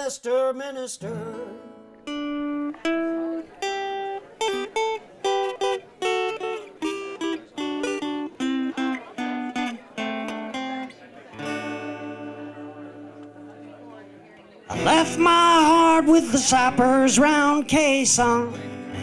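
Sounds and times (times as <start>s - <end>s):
person singing: 0.0s - 1.9s, 14.7s - 19.0s
guitar picked melody: 1.0s - 19.0s.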